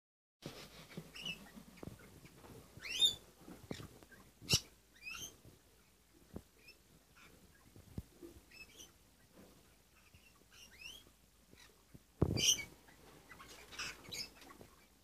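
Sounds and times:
parrot chicks chirping: 0.8s - 15.0s.

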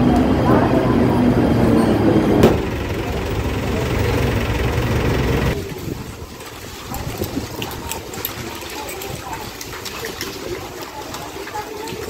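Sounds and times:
electric train rumble: 0.0s - 5.6s.

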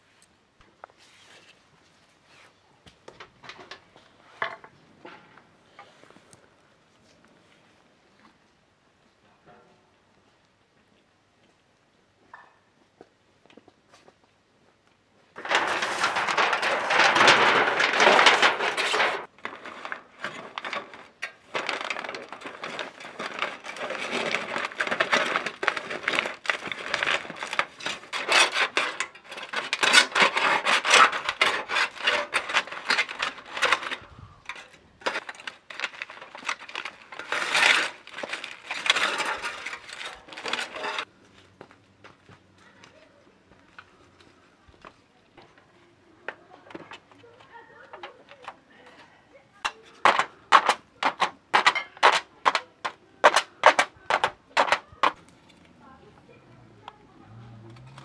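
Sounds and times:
aluminium foil crinkling: 15.4s - 41.1s.

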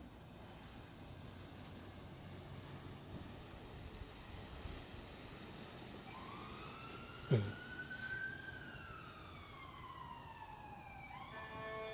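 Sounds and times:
distant siren wailing: 4.3s - 11.9s.

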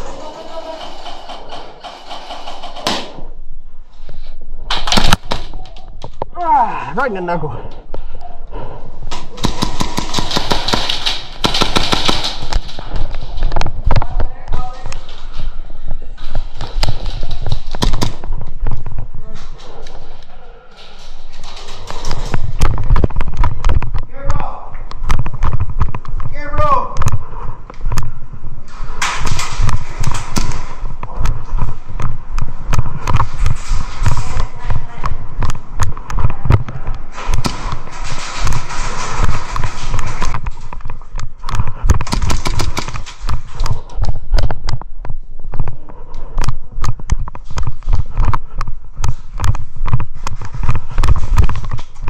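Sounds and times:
airsoft gunfire: 9.3s - 12.8s, 42.0s - 43.2s.

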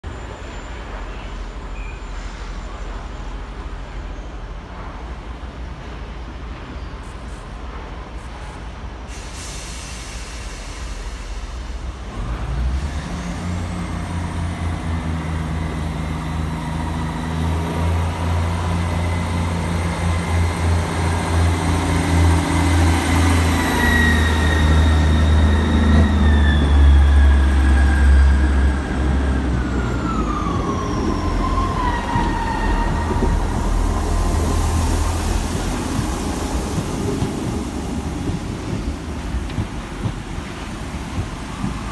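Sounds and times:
diesel train engine: 0.0s - 41.9s
hiss of air: 8.4s - 12.1s.

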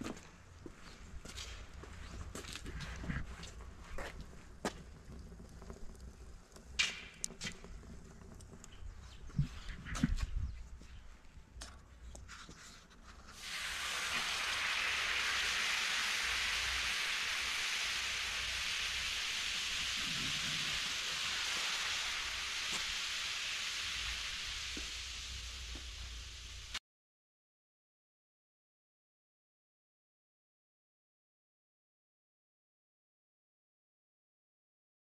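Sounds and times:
water sizzling on hot griddle: 1.2s - 11.4s, 12.0s - 26.8s.

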